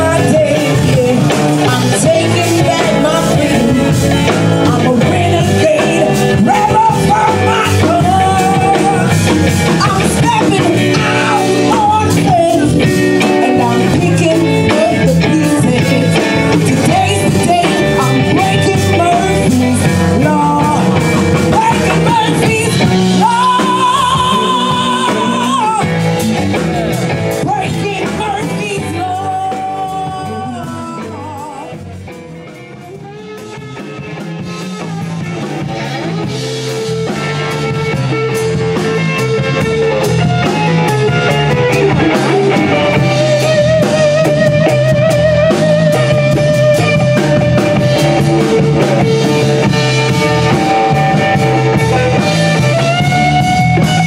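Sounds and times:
woman singing: 0:00.0 - 0:26.0, 0:27.3 - 0:31.9
blues band playing: 0:00.0 - 0:54.0.

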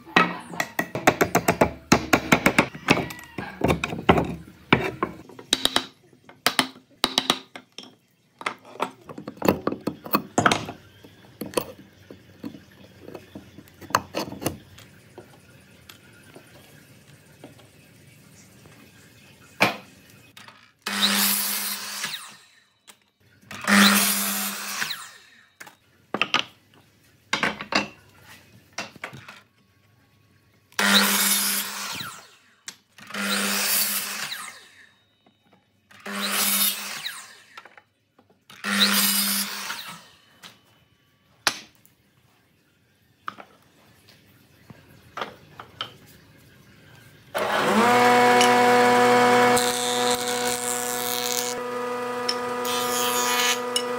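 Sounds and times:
miter saw cutting wood: 0:20.9 - 0:22.6, 0:23.6 - 0:25.4, 0:33.1 - 0:34.9, 0:36.0 - 0:37.6, 0:47.4 - 0:53.9
jointer motor running: 0:47.4 - 0:53.9.

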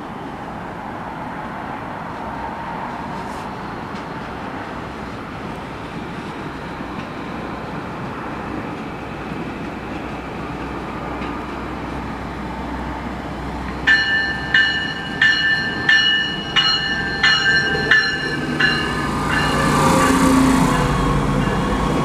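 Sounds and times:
train low rumble: 0:00.0 - 0:22.0
train warning bell ringing: 0:13.8 - 0:22.0.

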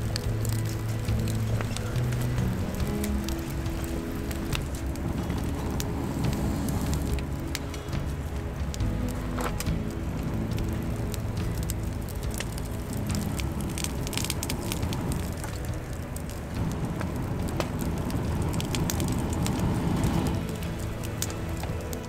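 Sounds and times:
air rushing through blowing pipe: 0:00.0 - 0:22.0
wood fire crackling and popping: 0:00.0 - 0:22.0.

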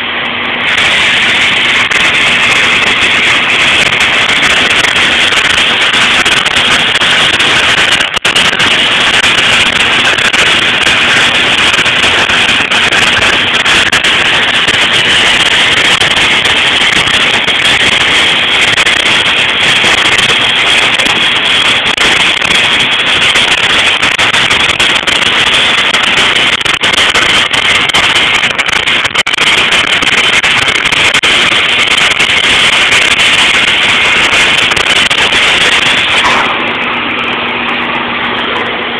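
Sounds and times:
crackles: 0:00.0 - 0:38.7
cutting torch hissing: 0:00.4 - 0:37.0.

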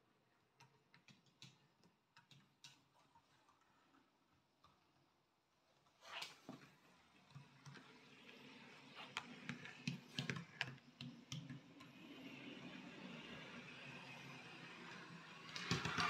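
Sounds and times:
model locomotive running hum: 0:06.8 - 0:16.0
model train wheels clicking: 0:07.7 - 0:16.0.

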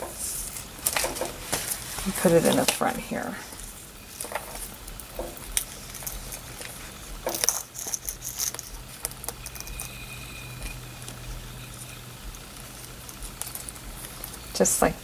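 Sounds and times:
rattling: 0:03.9 - 0:14.8
metal ball chain clinking: 0:03.9 - 0:15.0.

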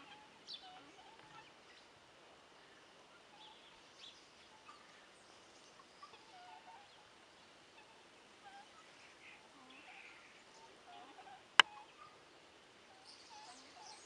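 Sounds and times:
faint bird chirps: 0:12.9 - 0:14.0.

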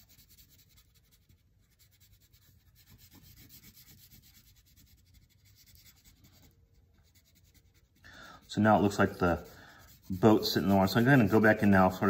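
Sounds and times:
crayon rubbing on paper: 0:00.0 - 0:12.0.

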